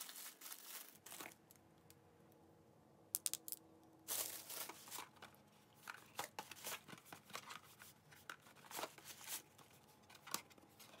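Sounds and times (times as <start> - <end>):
paper rustling and crinkling: 0.0 - 1.4, 4.1 - 11.0.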